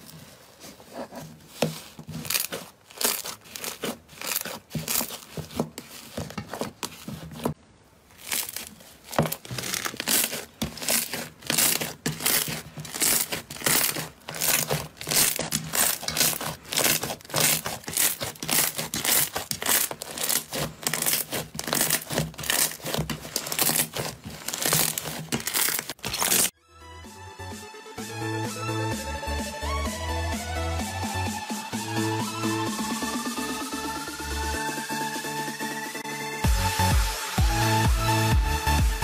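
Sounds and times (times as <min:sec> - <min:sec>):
hands squishing slime: 0:01.1 - 0:26.5.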